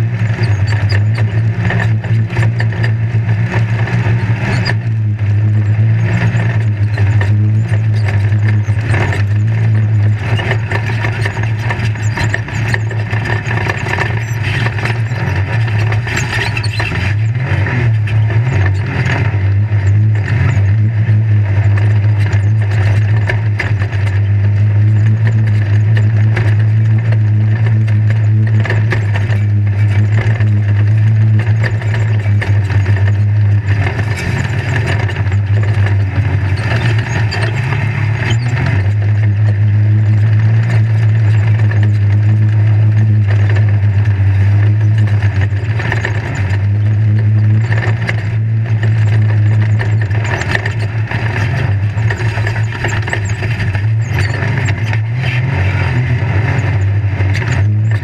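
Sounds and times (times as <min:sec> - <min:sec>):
chassis rattling and knocking: 0:00.0 - 0:58.0
engine running under load: 0:00.0 - 0:58.0.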